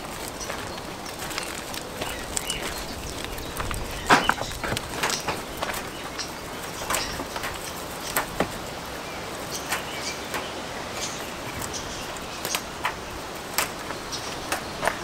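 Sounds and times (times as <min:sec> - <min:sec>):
goat tearing leaves: 0:00.0 - 0:08.8
steady background hiss: 0:00.0 - 0:15.0.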